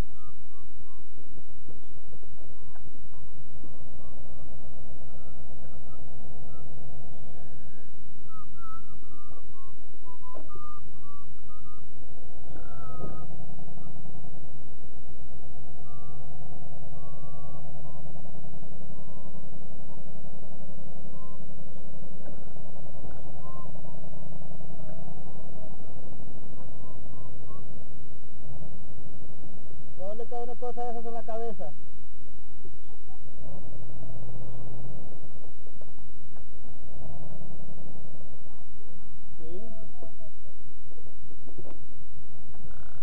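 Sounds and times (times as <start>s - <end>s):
thin wavering high tones: 0.0s - 43.0s.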